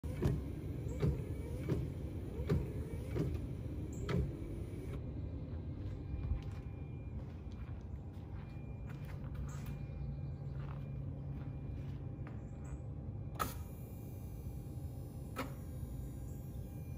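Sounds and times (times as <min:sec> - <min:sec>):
engine idling with low rumble: 0:00.0 - 0:16.9
footsteps on paving: 0:05.5 - 0:12.8.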